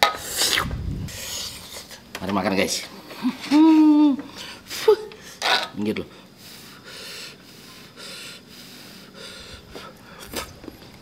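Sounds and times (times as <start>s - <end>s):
person breathing in soft puffs: 6.3s - 10.4s.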